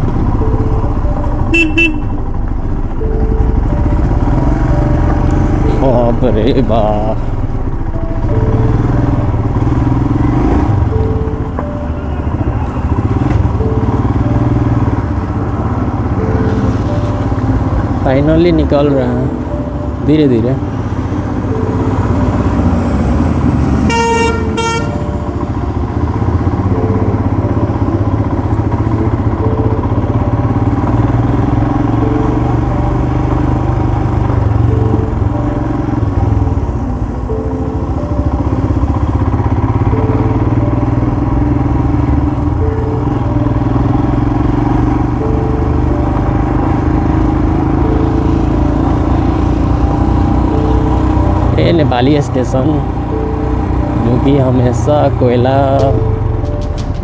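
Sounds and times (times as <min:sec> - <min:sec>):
motorcycle engine running: 0:00.0 - 0:57.0
horn honking: 0:01.2 - 0:04.7, 0:23.2 - 0:26.8.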